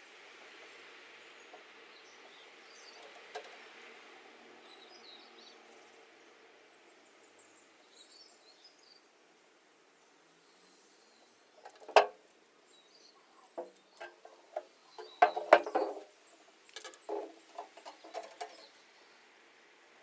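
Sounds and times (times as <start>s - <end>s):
metal can knocking and rattling: 11.6s - 12.2s, 13.6s - 16.1s, 16.7s - 18.7s.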